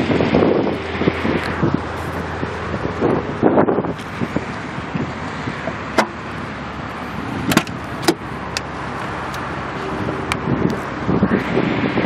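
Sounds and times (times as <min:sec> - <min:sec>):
car door handle and latch clicks: 0:07.5 - 0:08.7.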